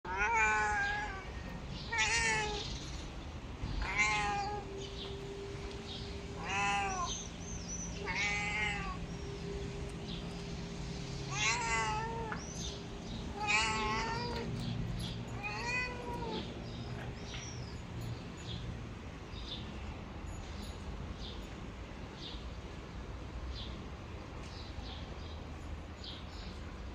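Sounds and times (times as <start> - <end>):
cat meowing: 0.1 - 2.8, 3.8 - 4.9, 6.4 - 7.3, 8.0 - 9.1, 11.2 - 12.7, 13.3 - 14.5, 15.3 - 17.0.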